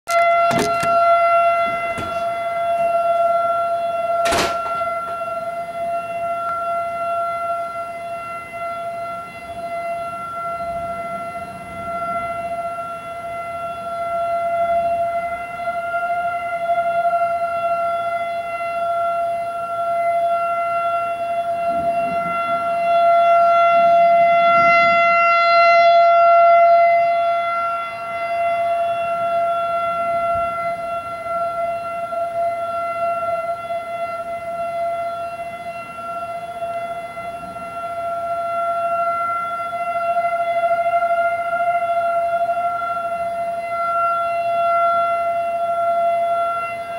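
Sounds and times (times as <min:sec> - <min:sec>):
tornado siren wailing: 0:00.1 - 0:46.9
sharp knock: 0:04.2 - 0:04.8.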